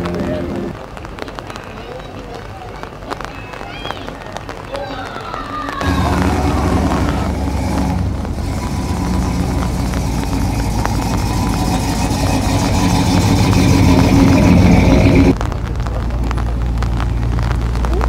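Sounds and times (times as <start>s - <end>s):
car engine rumbling: 0.0s - 1.2s, 5.8s - 18.0s.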